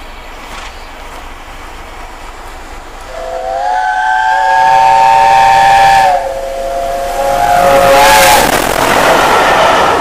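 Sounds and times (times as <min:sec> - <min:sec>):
steam locomotive chime whistle: 0:03.1 - 0:08.5.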